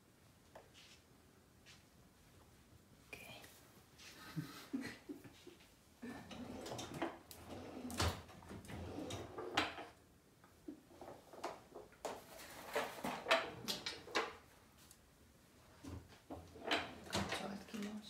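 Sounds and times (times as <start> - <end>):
kitchen drawer rummaging clatter: 12.2 - 14.2.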